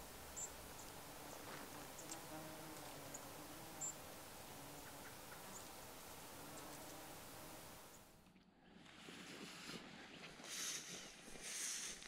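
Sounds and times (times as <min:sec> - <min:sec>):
insect chirps and ticks: 0:00.0 - 0:08.1.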